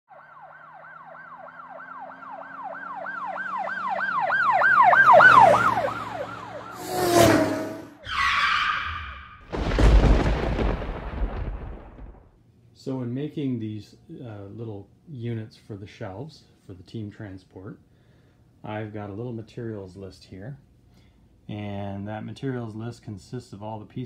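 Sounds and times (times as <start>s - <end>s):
yelp emergency siren: 0.1s - 9.4s
tyre screech: 6.8s - 9.4s.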